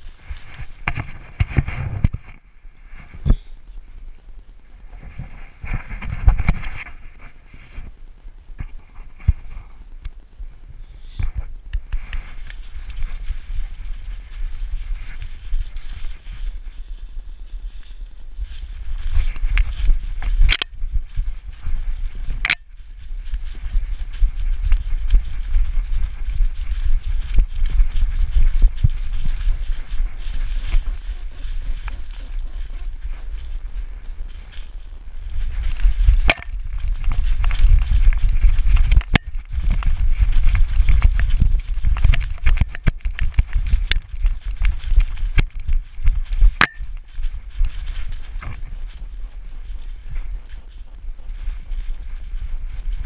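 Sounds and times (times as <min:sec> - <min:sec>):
dog running through dry leaves: 0:12.0 - 0:53.0.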